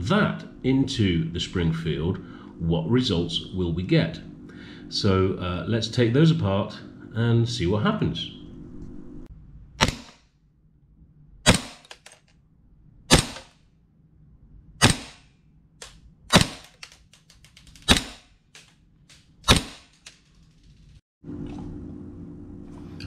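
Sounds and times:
airsoft pistol shots: 0:09.8 - 0:10.2, 0:11.4 - 0:11.9, 0:13.1 - 0:13.6, 0:14.8 - 0:15.3, 0:16.3 - 0:16.8, 0:17.8 - 0:18.3, 0:19.4 - 0:20.0.

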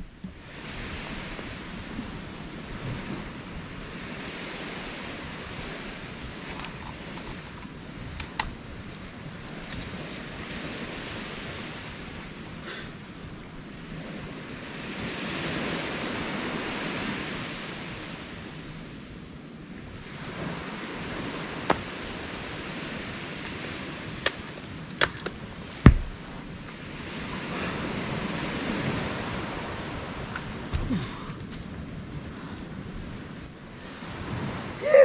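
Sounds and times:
wind: 0:00.0 - 0:35.0
coconut thud on sand: 0:21.7 - 0:21.9, 0:25.0 - 0:26.2.

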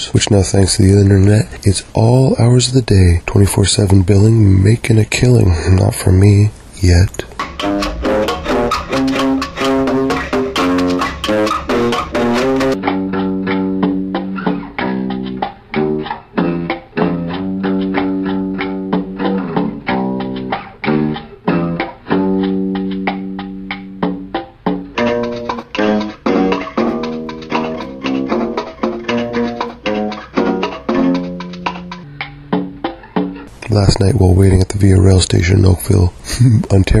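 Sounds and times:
plucked guitar notes: 0:07.3 - 0:35.2.

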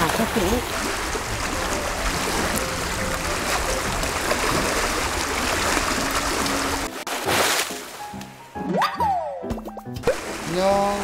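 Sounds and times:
water lapping against rocks: 0:00.0 - 0:08.0.

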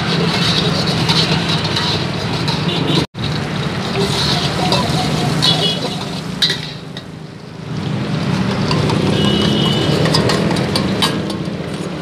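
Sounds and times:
metal spatula scraping in a wok: 0:00.0 - 0:07.1, 0:08.4 - 0:12.0
garlic frying in oil: 0:00.0 - 0:12.0
sharp clinks of steel bowl: 0:08.6 - 0:11.5.

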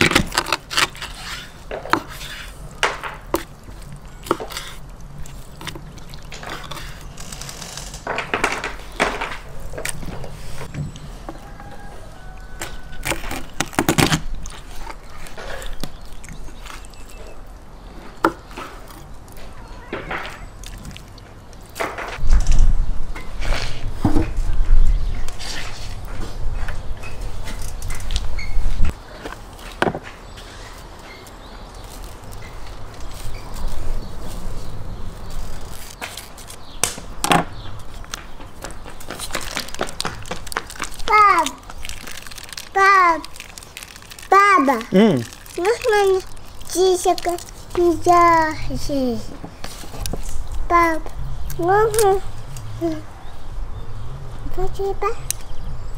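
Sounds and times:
plastic sachet crinkling: 0:39.2 - 0:48.5.

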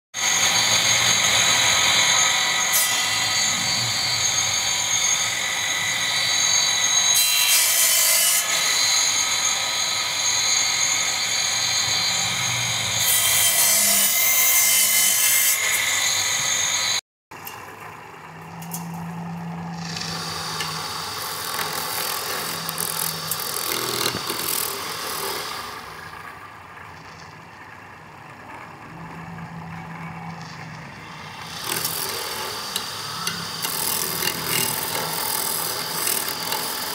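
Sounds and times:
saw cutting into log: 0:00.2 - 0:17.0, 0:19.7 - 0:26.2, 0:31.0 - 0:36.9
circular saw whining: 0:00.2 - 0:36.9
workshop noise: 0:00.2 - 0:36.9.

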